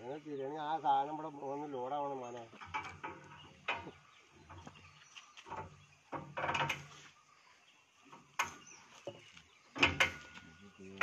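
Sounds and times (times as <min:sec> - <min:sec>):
metallic scrapes and knocks: 0:02.6 - 0:07.2, 0:08.1 - 0:11.0.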